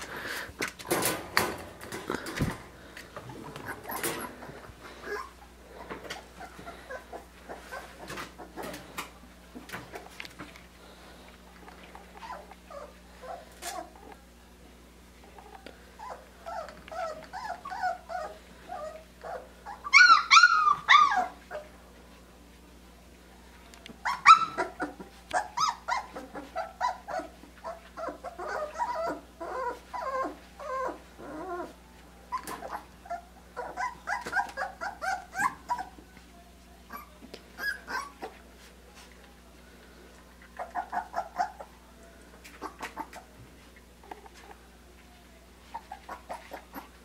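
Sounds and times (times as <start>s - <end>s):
puppies whimpering and yipping: 1.1s - 9.0s, 12.0s - 14.1s, 15.9s - 21.8s, 24.0s - 36.1s, 36.9s - 39.1s, 40.3s - 44.7s, 45.6s - 47.0s
puppy squealing: 16.0s - 21.6s, 24.0s - 31.7s, 32.3s - 35.9s, 36.9s - 38.3s, 40.6s - 41.7s.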